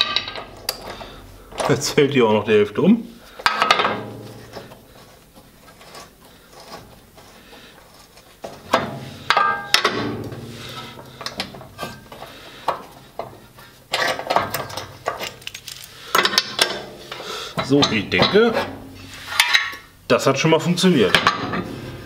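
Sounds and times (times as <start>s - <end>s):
clicks and clatter: 13.9s - 16.8s.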